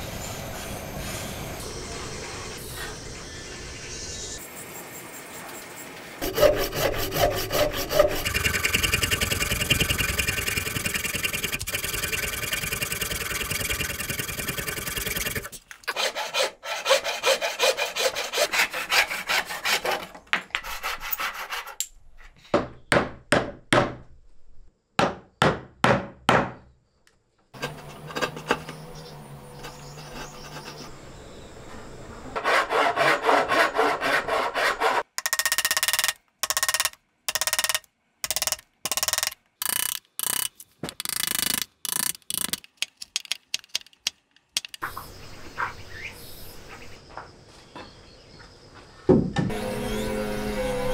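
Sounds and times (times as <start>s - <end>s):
hand saw cutting wood: 6.2s - 21.8s, 29.5s - 30.9s, 32.4s - 35.2s, 49.5s - 50.9s.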